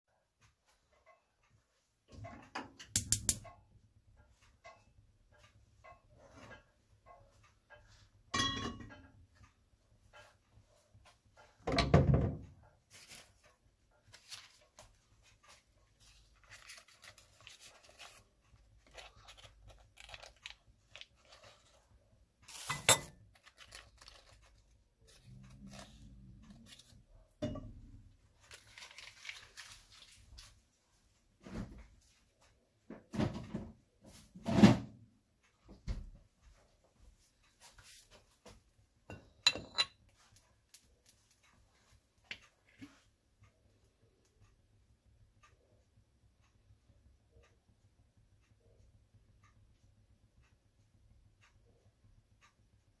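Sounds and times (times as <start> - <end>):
wok knocking on burner grate: 11.6 - 12.5
foil wrapper crinkling: 16.4 - 21.8, 23.3 - 26.0, 28.4 - 30.5.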